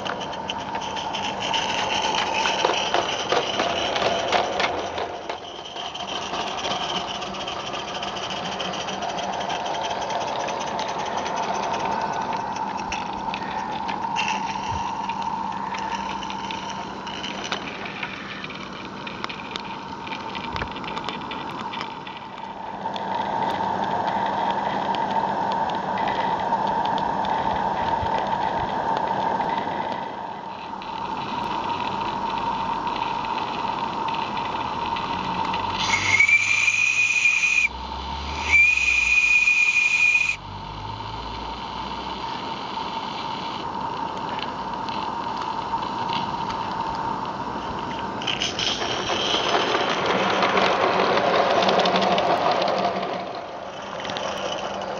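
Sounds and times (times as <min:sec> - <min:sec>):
wheels rattling on track: 0:00.0 - 0:54.9
steam exhaust: 0:34.8 - 0:43.8.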